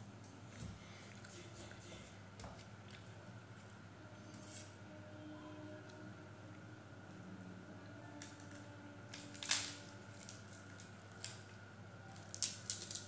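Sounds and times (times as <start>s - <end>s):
faint steady hum: 0.0s - 13.0s
flatbread crackling as torn: 9.1s - 11.6s, 12.2s - 13.0s.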